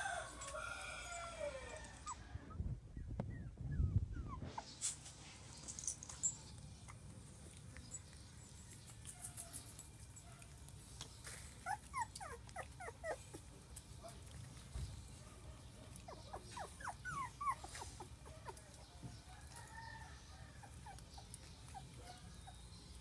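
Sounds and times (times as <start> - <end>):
puppies whimpering and yipping: 1.3 - 4.8, 11.3 - 13.7, 15.8 - 19.2, 20.2 - 23.0.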